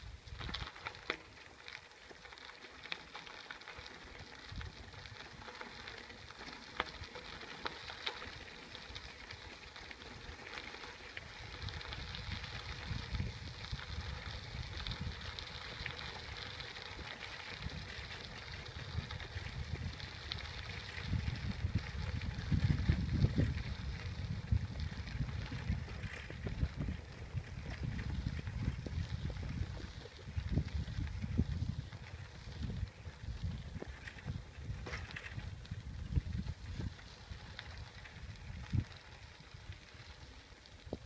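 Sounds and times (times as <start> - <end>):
wind buffeting microphone: 11.3 - 39.8.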